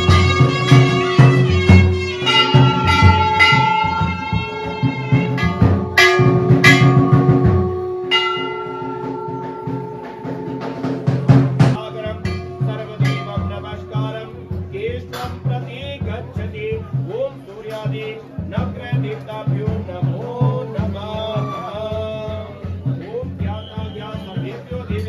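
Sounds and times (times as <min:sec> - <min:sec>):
bell-like strikes: 0:00.0 - 0:16.4
music with drum beat: 0:00.0 - 0:25.0.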